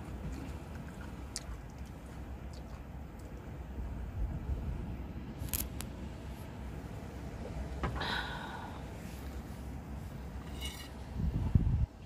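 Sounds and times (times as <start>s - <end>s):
low steady rumble: 0.0s - 12.0s
metal spoon scraping griddle: 10.5s - 11.0s.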